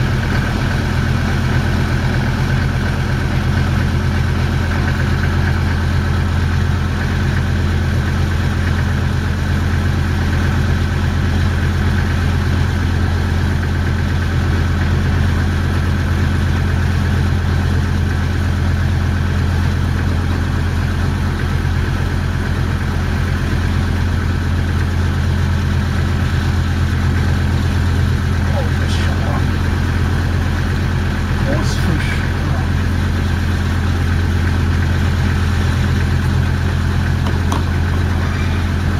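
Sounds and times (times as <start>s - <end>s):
motor boat engine droning: 0.0s - 38.9s.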